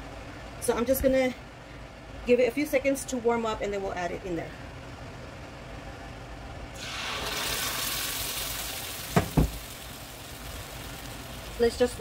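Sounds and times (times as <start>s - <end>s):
sauce sizzling in a frying pan: 6.8s - 12.0s
sharp knocks: 9.2s - 9.6s.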